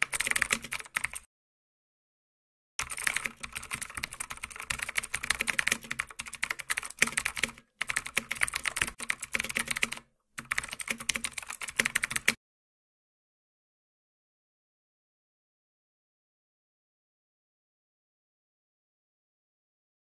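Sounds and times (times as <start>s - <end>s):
rapid keyboard typing: 0.0s - 1.3s, 2.8s - 12.4s.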